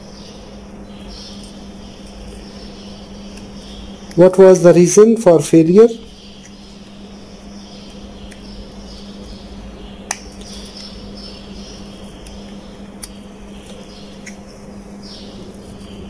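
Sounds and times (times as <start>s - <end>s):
steady low hum: 0.0s - 16.0s
knife clicking on capacitor casing: 10.0s - 11.0s, 12.2s - 14.5s.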